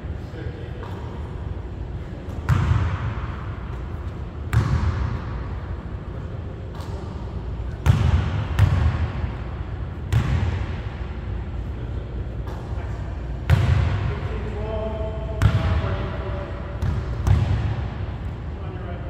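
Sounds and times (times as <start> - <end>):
basketball bouncing on hardwood floor: 7.8 - 9.0, 16.8 - 17.7.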